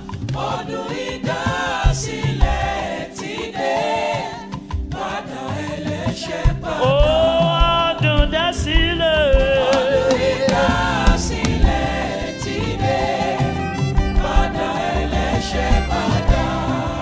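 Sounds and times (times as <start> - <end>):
band with drums playing: 4.5 - 17.0
singers holding long note: 9.5 - 17.0.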